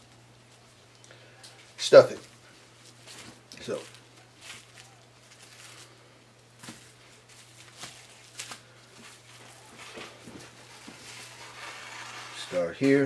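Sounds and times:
steady low hum: 0.0s - 13.0s
gloved hands rustling and tapping: 6.6s - 11.5s.

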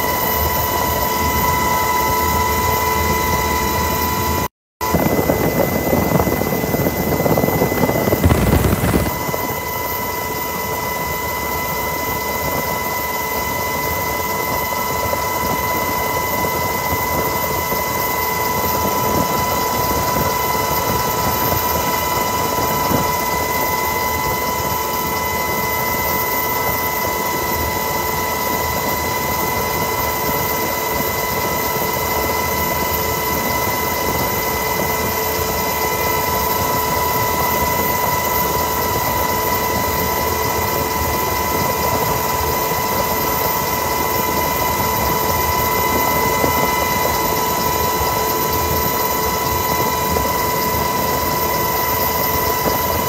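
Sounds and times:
high steady whine: 0.0s - 14.2s
helicopter engine and rotor noise: 0.0s - 53.0s.

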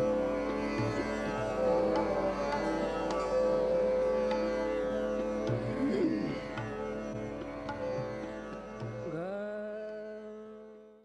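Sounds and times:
plucked string instrument music: 4.0s - 8.0s.

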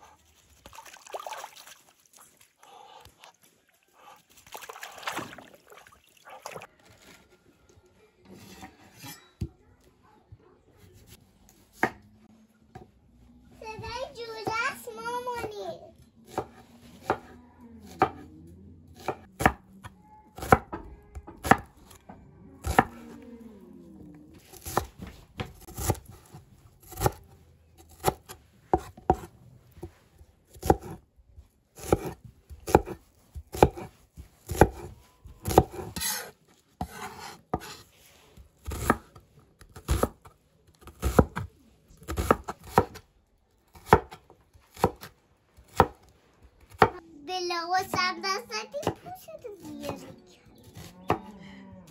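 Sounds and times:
knife chopping on wooden board: 27.9s - 29.9s, 30.5s - 31.0s, 31.8s - 37.8s, 42.1s - 43.0s.

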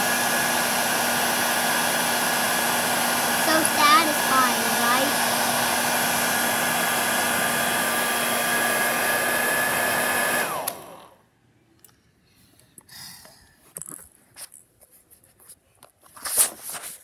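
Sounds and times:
hair dryer blowing: 0.0s - 11.2s.

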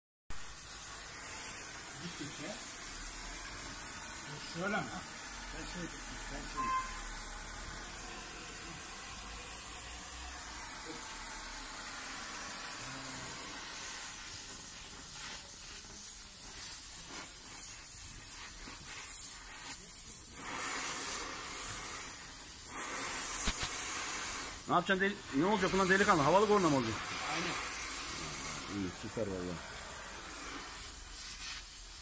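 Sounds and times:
gas torch flame hissing: 0.3s - 32.0s.

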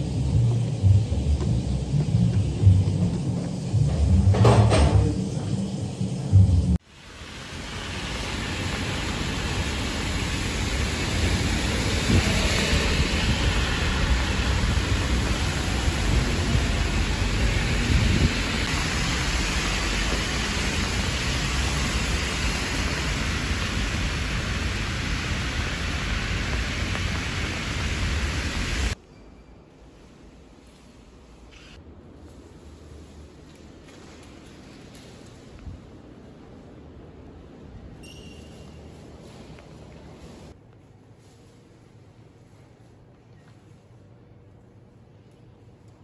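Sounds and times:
steady rain: 6.8s - 29.0s
wind buffeting microphone: 11.1s - 19.0s.

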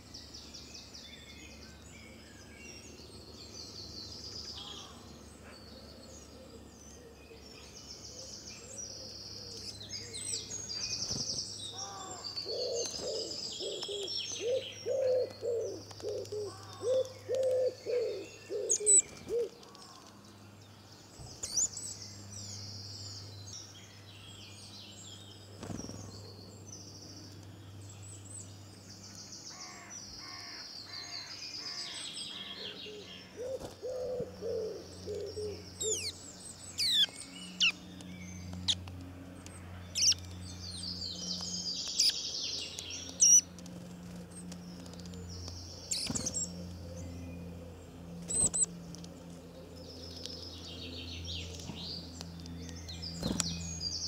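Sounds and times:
small birds singing and chirping: 0.0s - 54.0s
low cooing notes: 12.5s - 19.5s.

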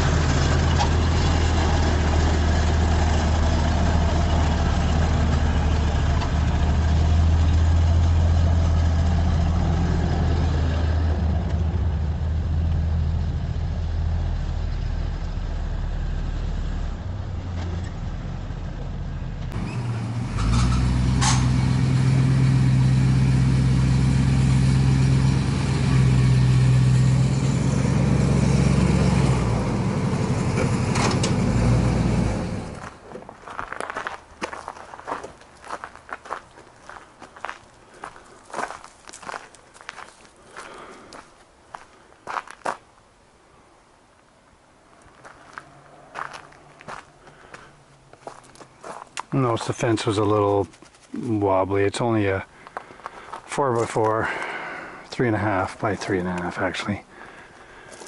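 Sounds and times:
truck engine humming: 0.0s - 42.5s, 44.5s - 58.0s
short metal clanks: 20.4s - 21.6s.

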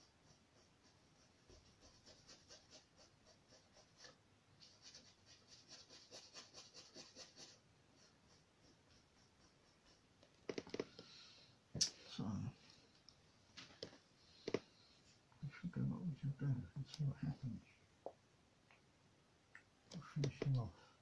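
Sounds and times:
paintbrush dabbing on canvas: 0.0s - 11.0s.

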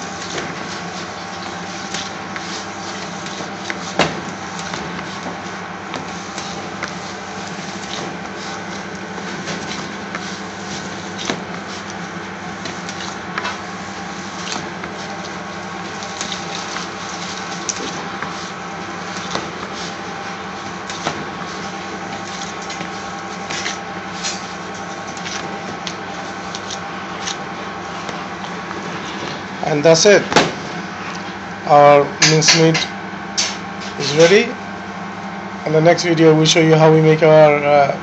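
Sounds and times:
wet squelches of kneading mince: 0.0s - 29.6s
steady machine hum: 0.0s - 38.0s.

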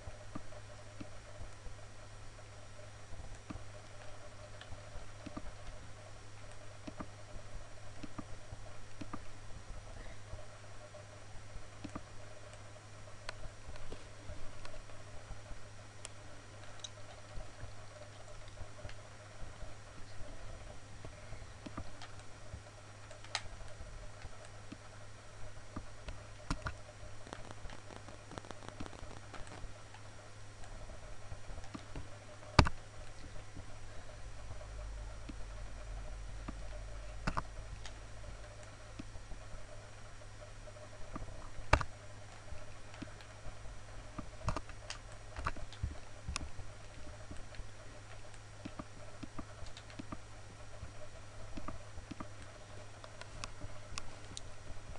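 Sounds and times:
low hum: 0.0s - 54.9s
computer mouse clicks: 3.2s - 5.8s, 6.4s - 7.3s, 8.0s - 8.3s, 8.9s - 9.3s, 11.8s - 12.6s, 21.0s - 22.3s, 23.0s - 24.9s, 25.8s - 30.1s, 31.6s - 33.3s, 36.4s - 39.7s, 40.7s - 43.4s, 44.1s - 50.9s, 51.5s - 54.5s.

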